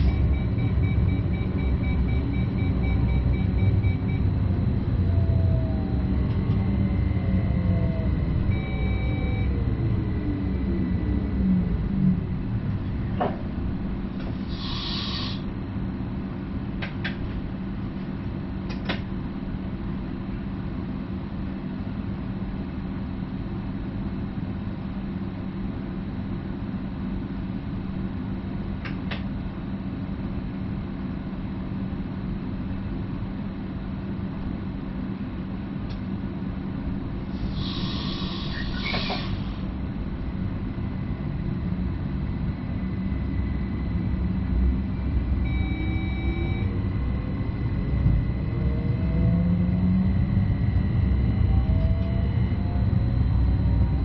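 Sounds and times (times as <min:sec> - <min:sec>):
train motor whine: 0:00.0 - 0:15.5, 0:37.2 - 0:54.0
electric train hum and rumble: 0:00.0 - 0:54.0.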